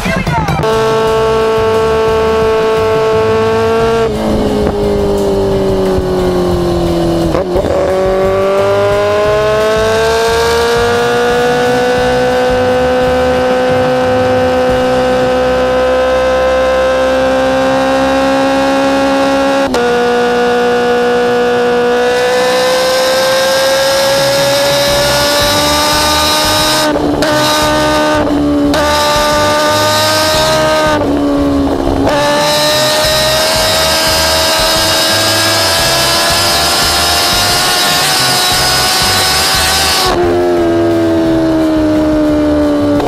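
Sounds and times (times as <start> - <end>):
motorcycle engine running hard: 0.0 - 43.0
rush of wind: 0.6 - 16.0, 18.8 - 43.0.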